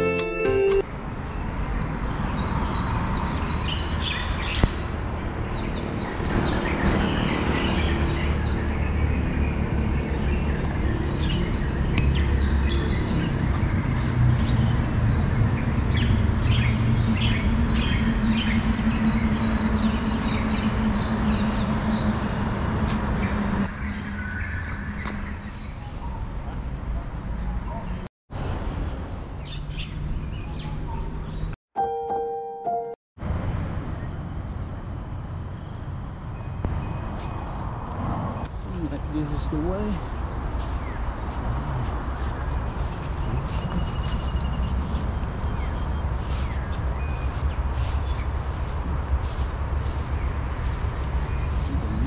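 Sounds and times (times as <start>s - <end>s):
thin high tone: 0.0s - 0.8s, 31.8s - 38.0s
low outdoor rumble: 33.2s - 52.0s
small birds chirping: 38.5s - 52.0s.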